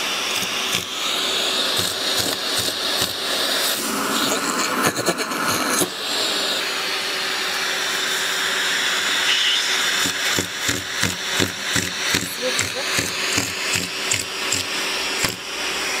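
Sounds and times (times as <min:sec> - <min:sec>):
vacuum cleaner running: 0:00.0 - 0:16.0
rubbing and knocking: 0:09.9 - 0:15.4.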